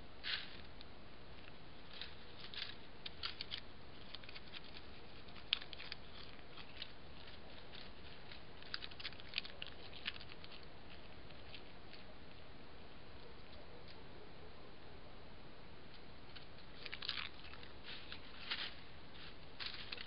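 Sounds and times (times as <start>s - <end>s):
faint hiss: 0.0s - 20.0s
dry leaf litter crackling: 1.4s - 12.1s, 16.7s - 20.0s.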